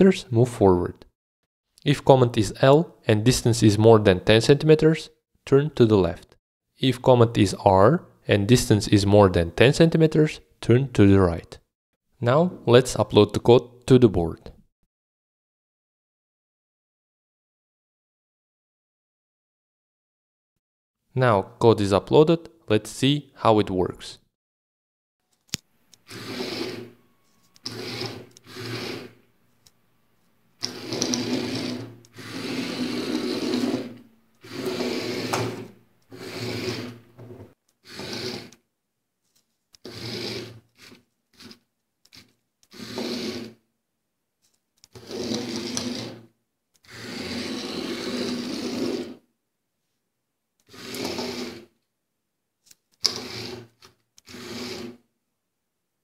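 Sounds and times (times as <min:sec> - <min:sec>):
small gear motors whirring: 0:27.6 - 0:29.2.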